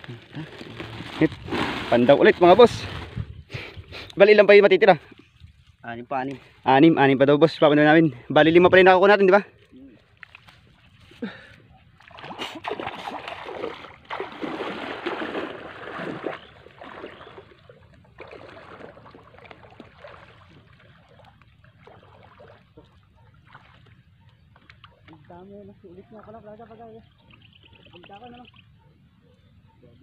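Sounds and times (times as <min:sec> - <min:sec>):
water sloshing from wading: 0:10.0 - 0:25.4.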